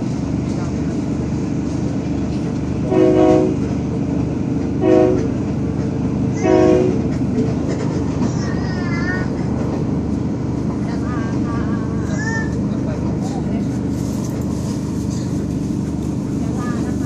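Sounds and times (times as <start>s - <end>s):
train rumbling: 0.0s - 17.0s
train horn blasts: 2.8s - 3.7s, 4.8s - 5.3s, 6.4s - 7.1s.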